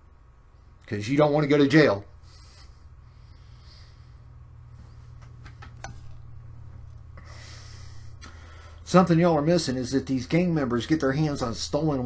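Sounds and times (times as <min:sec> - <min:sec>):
low hum: 0:02.1 - 0:12.0.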